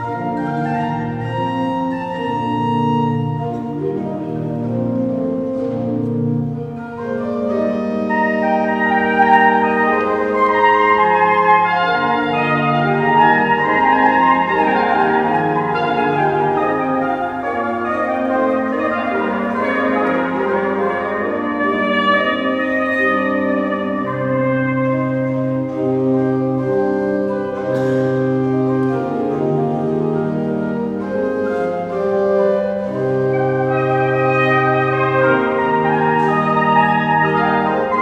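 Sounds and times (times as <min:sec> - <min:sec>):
cornettino melody: 0:00.0 - 0:38.0
organ bass notes: 0:00.0 - 0:38.0.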